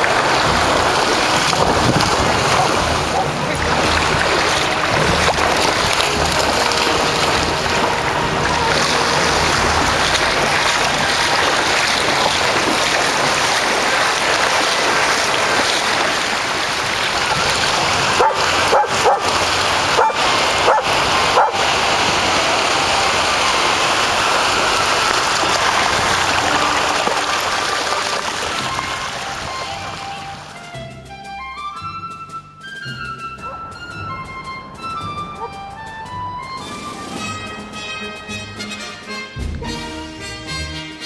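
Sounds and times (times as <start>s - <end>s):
ocean surf: 0.0s - 30.7s, 33.5s - 38.3s
water splashing: 0.0s - 30.8s
dogs barking and yipping: 2.0s - 13.2s, 18.0s - 28.2s, 33.4s - 34.0s, 34.8s - 36.0s.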